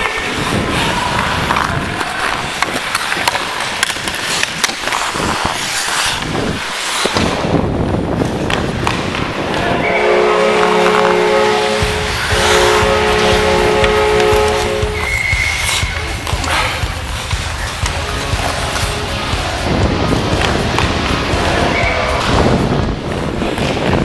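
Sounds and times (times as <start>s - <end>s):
hockey sticks and puck clicking: 0.0s - 9.7s, 10.5s - 24.0s
skate blades scraping on ice: 0.0s - 24.0s
goal horn: 9.6s - 15.9s.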